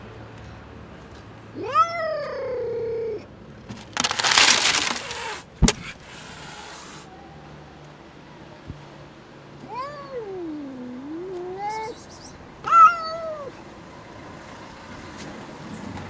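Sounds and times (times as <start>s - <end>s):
cat yowling: 1.6s - 3.2s, 9.6s - 13.6s
kibble spilling into plastic tub: 3.8s - 5.3s
cat hissing: 5.0s - 7.1s.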